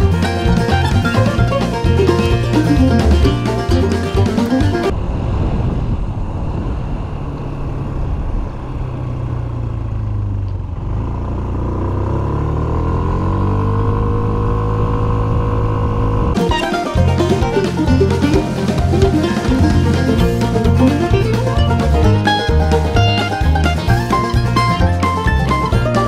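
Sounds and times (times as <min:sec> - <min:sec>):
scooter engine accelerating: 0:00.0 - 0:05.2, 0:06.0 - 0:26.0
wind noise: 0:00.0 - 0:09.7, 0:14.1 - 0:16.4.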